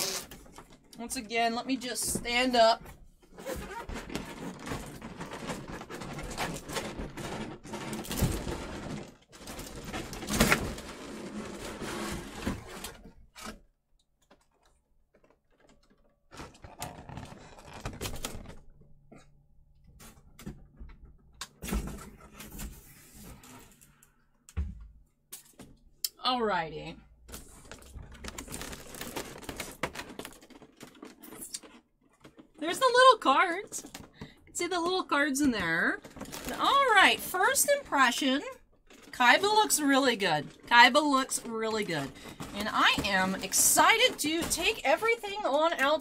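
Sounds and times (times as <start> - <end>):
cardboard rustling and scraping: 2.1 - 13.7, 15.5 - 18.6, 21.6 - 24.0, 27.3 - 32.6, 35.5 - 46.0.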